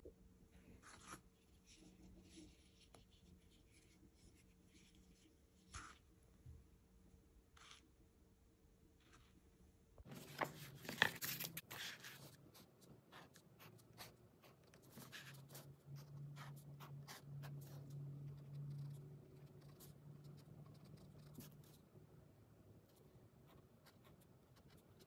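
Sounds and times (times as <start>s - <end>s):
pen scratching on paper: 10.6s - 21.8s, 22.9s - 25.0s.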